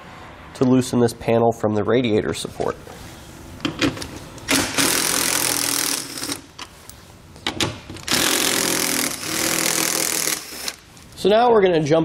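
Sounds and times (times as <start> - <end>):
cordless impact driver running: 4.5 - 6.4, 8.1 - 10.8.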